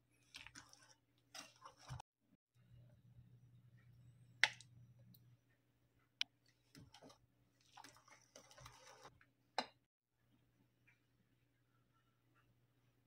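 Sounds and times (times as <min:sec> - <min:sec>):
whisk stirring thick mixture: 0:00.0 - 0:02.0, 0:06.5 - 0:09.1.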